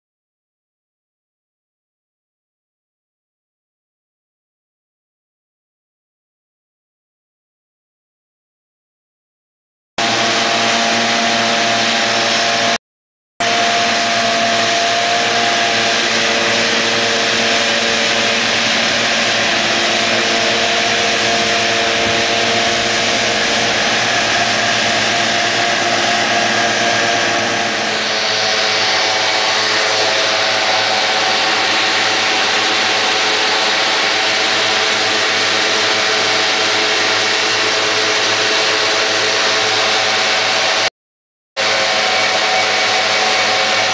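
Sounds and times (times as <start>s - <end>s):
tractor engine and mower drone: 10.0s - 12.8s, 13.4s - 40.9s, 41.6s - 43.9s.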